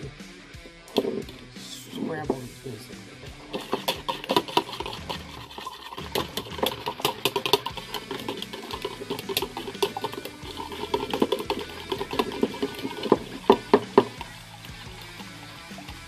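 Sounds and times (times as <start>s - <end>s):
wire whisk beating eggs in bowl: 3.3s - 16.0s.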